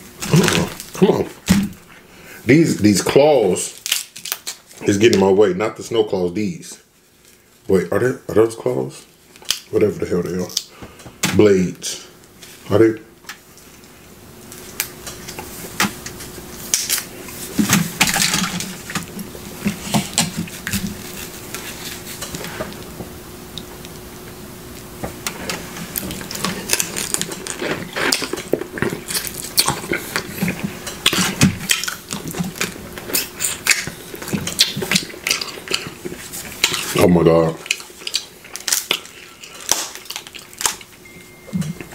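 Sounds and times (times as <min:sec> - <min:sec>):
faint steady hum: 0:00.0 - 0:41.9
crab shell cracking: 0:03.7 - 0:04.8, 0:16.6 - 0:17.1, 0:25.9 - 0:37.0, 0:37.6 - 0:40.9.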